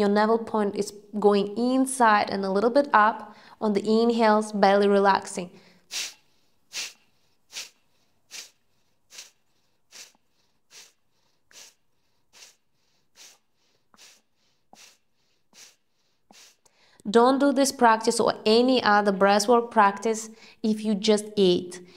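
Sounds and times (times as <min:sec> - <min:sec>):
woman exhaling sharply through nose: 0:05.6 - 0:17.0.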